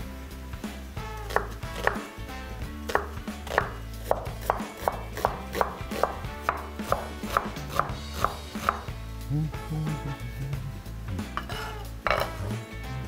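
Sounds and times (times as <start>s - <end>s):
knife chopping on wooden board: 1.2s - 2.1s, 2.9s - 8.9s, 11.4s - 12.5s.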